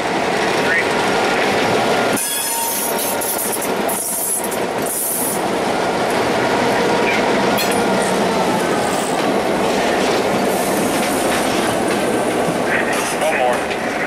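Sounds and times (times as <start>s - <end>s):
diesel locomotive engines running: 0.0s - 14.0s
train wheels rumbling on rails: 0.0s - 14.0s
high wheel squeal: 2.2s - 3.4s.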